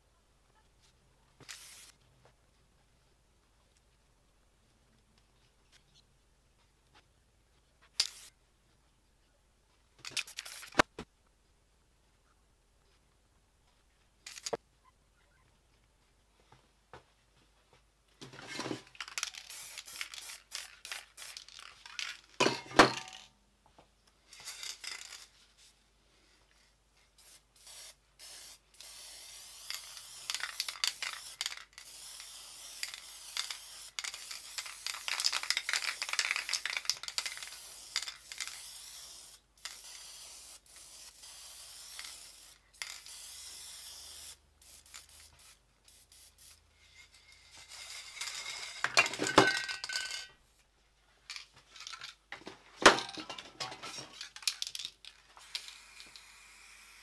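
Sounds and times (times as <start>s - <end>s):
spray paint can hissing: 1.4s - 2.0s, 8.0s - 8.3s, 10.0s - 10.8s, 18.9s - 22.1s, 27.2s - 48.8s, 55.4s - 57.0s
scraping and handling noises: 18.2s - 19.4s.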